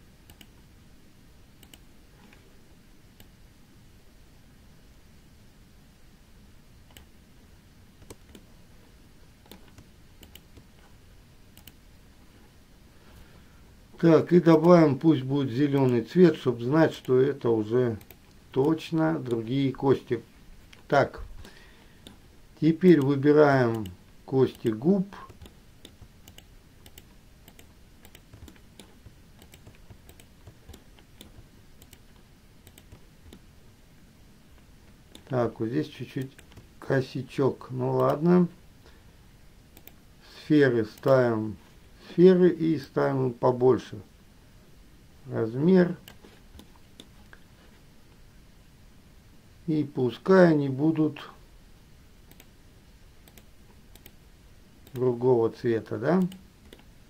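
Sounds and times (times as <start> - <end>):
low room hiss: 0.0 - 57.0
computer mouse clicks: 0.2 - 0.6, 1.6 - 2.4, 3.2 - 3.4, 6.9 - 7.1, 8.0 - 8.5, 9.4 - 10.9, 11.6 - 11.8, 18.0 - 19.4, 23.7 - 33.5, 35.1 - 35.3, 36.2 - 36.7, 38.0 - 38.2, 39.8 - 40.0, 46.0 - 47.4, 52.3 - 52.5, 53.2 - 54.2, 54.8 - 55.1, 56.2 - 56.9.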